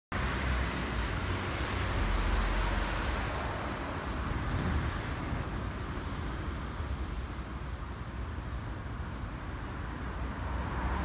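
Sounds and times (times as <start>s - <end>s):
distant road traffic: 0.1s - 11.0s.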